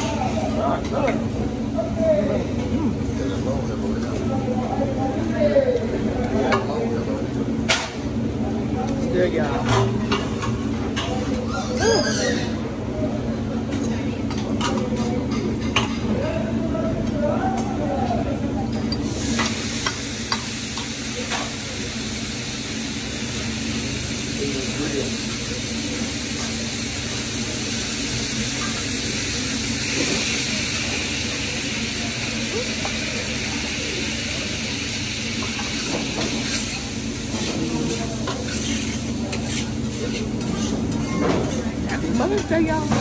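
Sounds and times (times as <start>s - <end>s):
background hum and hiss: 0.0s - 43.0s
food sizzling on griddle: 19.0s - 43.0s.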